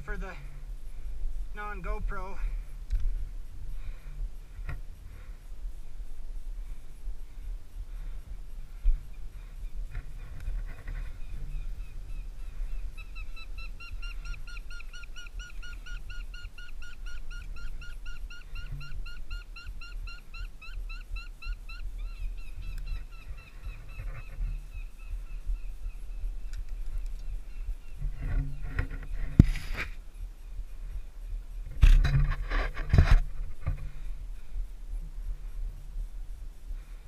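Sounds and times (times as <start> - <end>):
woodpecker wick call: 10.8 - 29.8.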